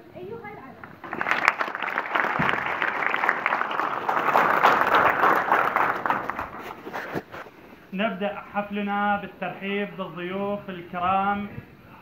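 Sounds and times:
crowd applauding: 0:01.0 - 0:07.2.

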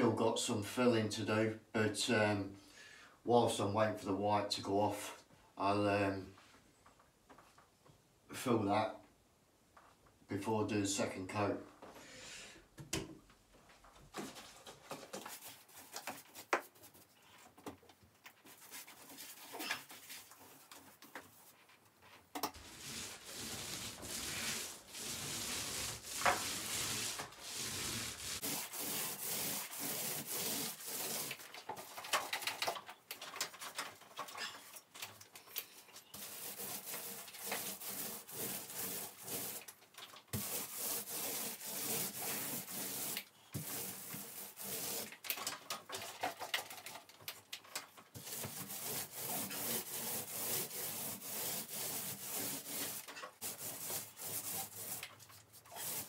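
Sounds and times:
paint roller rubbing on ceiling: 0:18.4 - 0:31.5, 0:36.0 - 0:45.3, 0:48.2 - 0:56.0.

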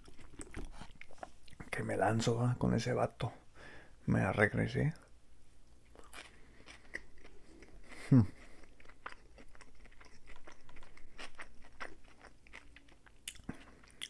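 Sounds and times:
close chewing crunches: 0:00.0 - 0:01.8, 0:05.9 - 0:14.0.

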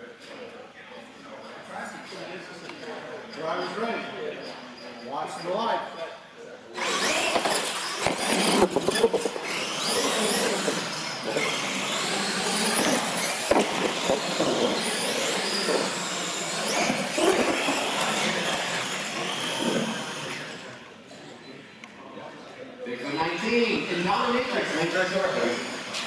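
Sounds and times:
toy truck motors whining: 0:06.8 - 0:20.9, 0:23.0 - 0:26.0
tyre noise on concrete: 0:12.4 - 0:18.7.

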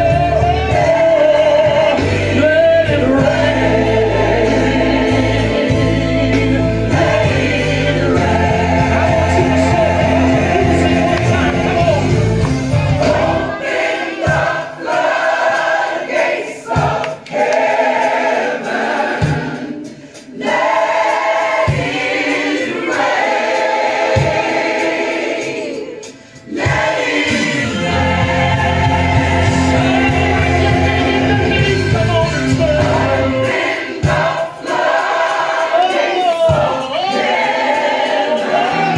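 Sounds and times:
bass and beat: 0:00.0 - 0:13.5, 0:26.7 - 0:33.5
choir singing gospel song: 0:00.0 - 0:38.9.

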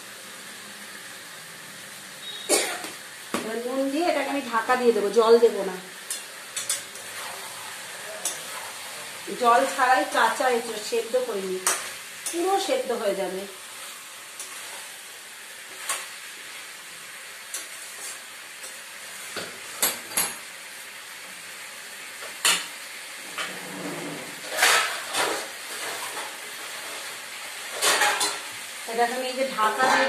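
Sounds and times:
food sizzling in a steel pan: 0:00.0 - 0:30.0
metal spatula scraping a pan: 0:06.1 - 0:10.7, 0:23.2 - 0:28.5, 0:29.6 - 0:30.0.

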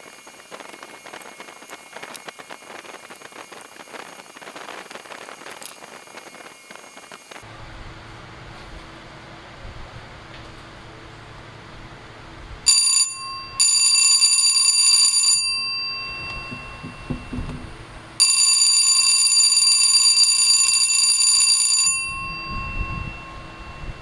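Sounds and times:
electric bell ringing: 0:12.7 - 0:24.0.

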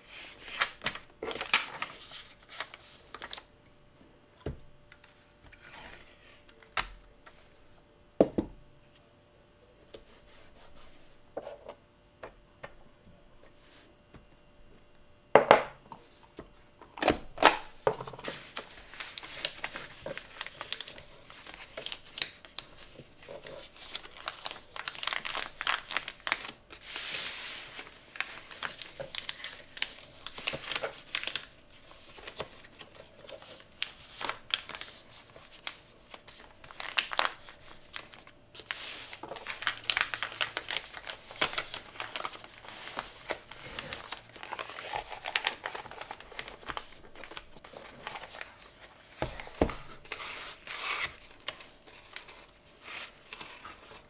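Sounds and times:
paper crinkling and rustling: 0:00.0 - 0:03.5, 0:17.4 - 0:54.0.

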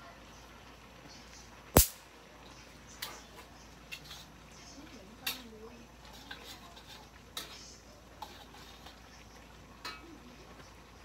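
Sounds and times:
metal spatula scraping a wok: 0:03.9 - 0:04.6, 0:05.2 - 0:10.0.

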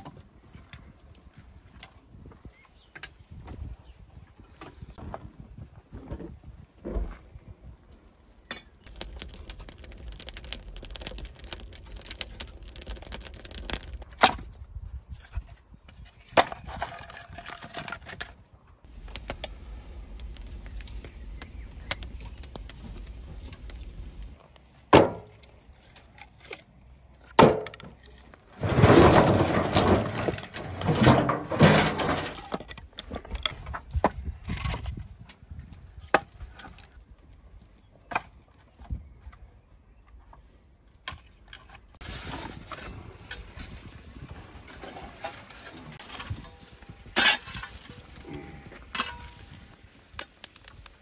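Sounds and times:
firewood logs clattering: 0:06.0 - 0:14.6, 0:15.2 - 0:37.3, 0:41.0 - 0:51.0
wood fire crackling: 0:07.1 - 0:14.4, 0:18.8 - 0:27.3, 0:41.9 - 0:51.0.

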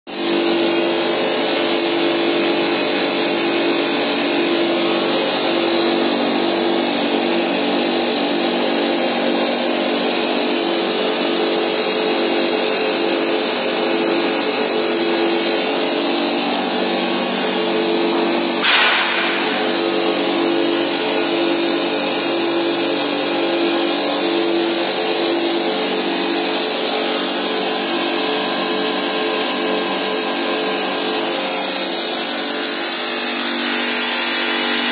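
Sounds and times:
machinery drone with high whine: 0:00.1 - 0:34.9
sharp snap: 0:18.6 - 0:20.2.

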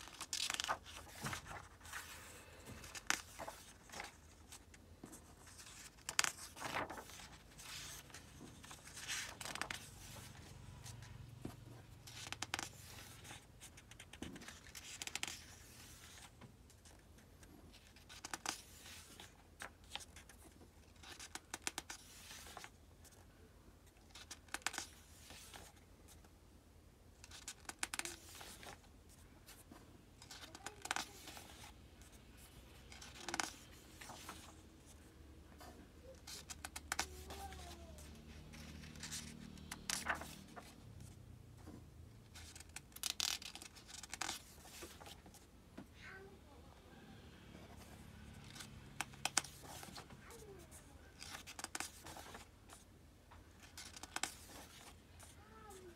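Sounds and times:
book pages turning: 0:00.0 - 0:23.2, 0:24.0 - 0:26.2, 0:27.2 - 0:45.5, 0:47.7 - 0:52.9, 0:53.5 - 0:55.9.

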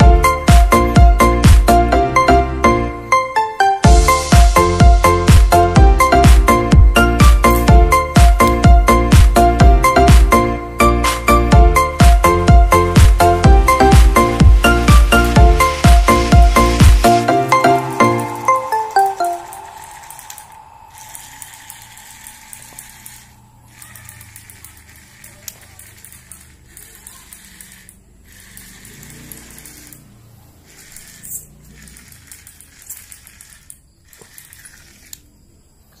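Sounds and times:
background music: 0:00.0 - 0:23.7
clicks and rattles on tiled floor: 0:21.2 - 0:36.0.

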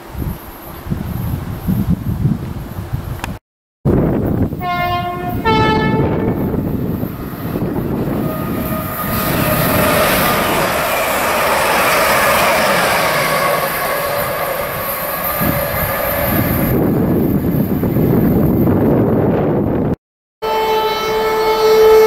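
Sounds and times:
rumble of train wheels on rail: 0:00.0 - 0:20.0
two-tone train horn: 0:04.6 - 0:06.7, 0:07.4 - 0:11.1, 0:20.4 - 0:22.0.

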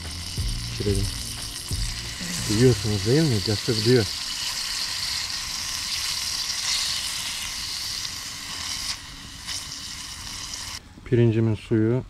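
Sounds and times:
mushrooms sizzling in pan: 0:00.0 - 0:10.8.

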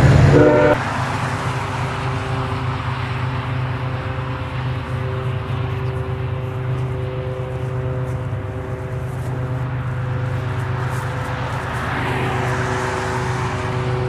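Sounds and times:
diesel locomotive engine droning: 0:00.0 - 0:14.0
rushing noise: 0:00.0 - 0:14.0
whining tones: 0:00.0 - 0:14.0.

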